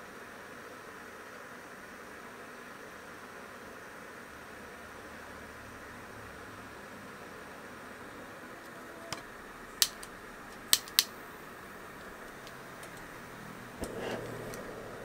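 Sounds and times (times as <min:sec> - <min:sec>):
steady hiss: 0:09.2 - 0:15.0
metal clicks against camping pot: 0:09.8 - 0:11.1.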